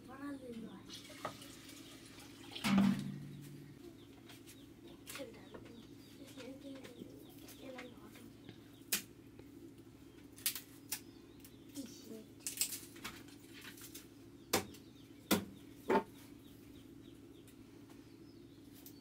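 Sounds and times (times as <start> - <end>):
metal vessel clanking against pot: 2.6 - 3.4.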